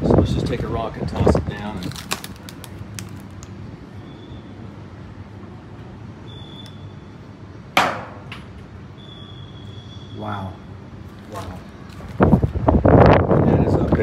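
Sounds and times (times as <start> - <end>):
wind noise: 0.0 - 3.2, 11.5 - 14.0.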